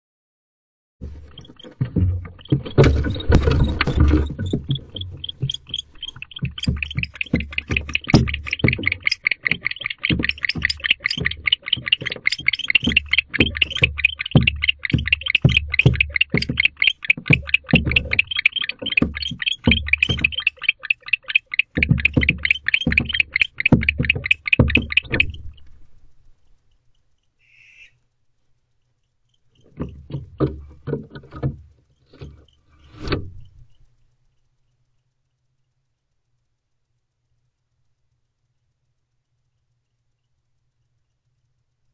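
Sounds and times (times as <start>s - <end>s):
barn owl chittering calls: 1.2s - 25.7s, 27.4s - 28.0s.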